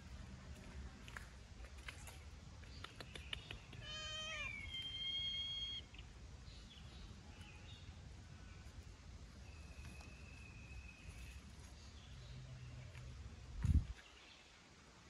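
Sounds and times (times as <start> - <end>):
meow-like animal cry: 3.8 - 5.8.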